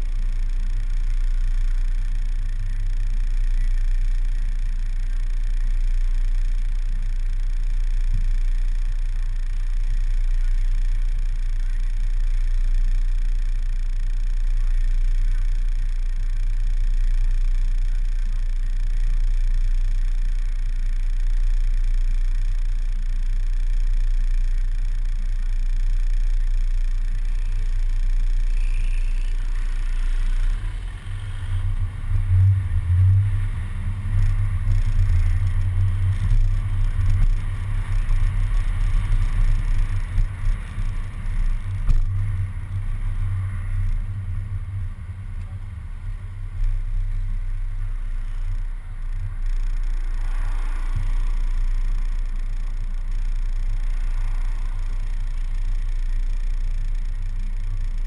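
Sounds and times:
wind and road rumble: 23.7s - 58.0s.

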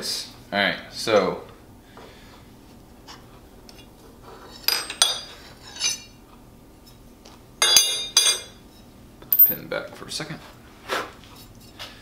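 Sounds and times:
steel parts clinking against vise: 4.6s - 6.1s, 7.6s - 8.5s.

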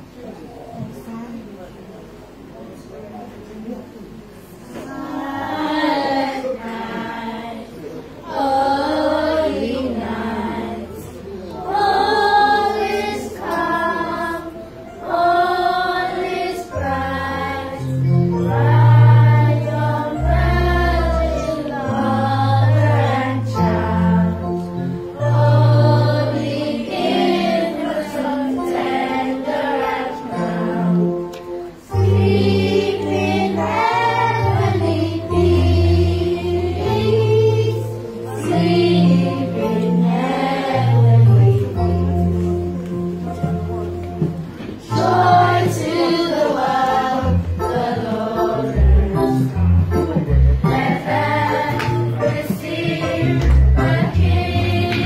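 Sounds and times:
children's choir singing: 4.4s - 55.0s
sustained low bass notes: 32.0s - 55.0s.

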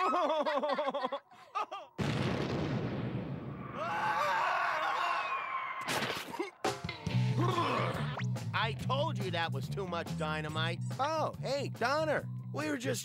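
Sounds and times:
cartoon explosion blast: 2.0s - 4.2s.

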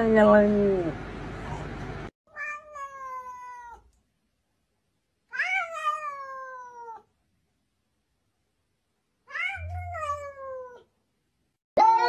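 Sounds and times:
cat meowing: 2.3s - 3.9s, 5.3s - 7.1s, 9.2s - 10.9s.

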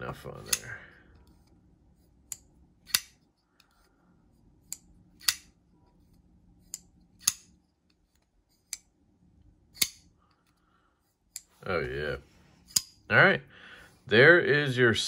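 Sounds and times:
folding knife clicking open: 4.7s - 5.5s.

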